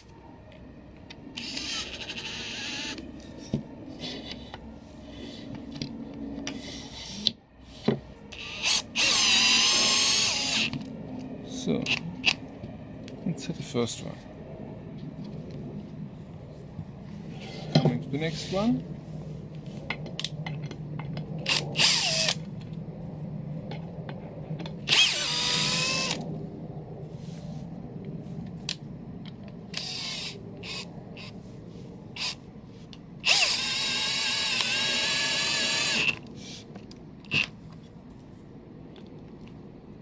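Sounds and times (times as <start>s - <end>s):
cordless drill whining: 1.4s - 3.0s, 8.3s - 10.9s, 21.5s - 22.4s, 24.9s - 26.2s, 29.8s - 31.3s, 33.2s - 36.2s.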